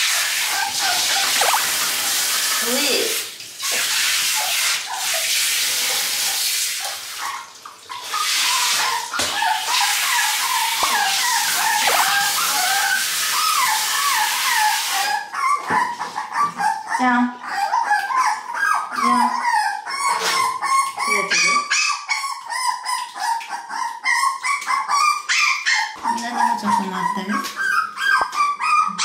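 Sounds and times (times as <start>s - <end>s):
puppy yelping and whining: 0.0s - 1.9s, 7.2s - 29.0s
shower head spraying water: 0.0s - 6.4s, 9.6s - 15.0s.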